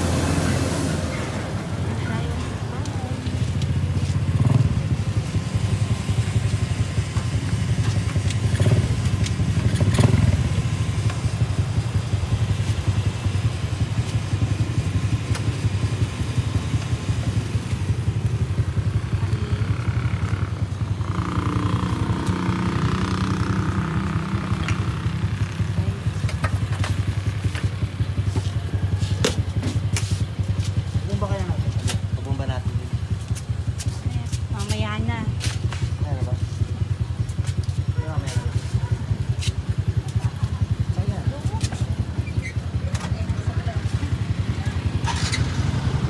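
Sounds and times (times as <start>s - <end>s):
motorcycle engine idling: 1.6s - 46.0s.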